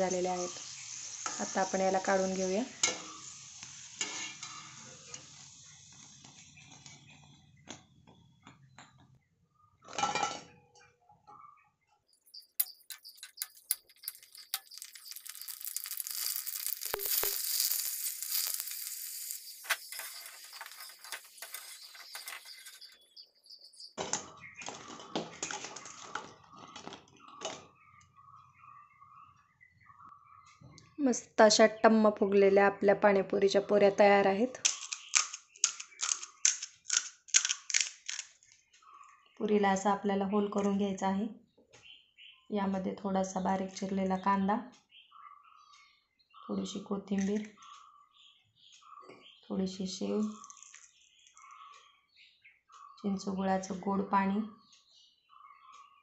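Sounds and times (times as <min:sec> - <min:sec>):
frying in hot oil sizzling: 0:00.0 - 0:07.2, 0:12.2 - 0:24.6
strainer scraping and clinking: 0:12.4 - 0:23.2.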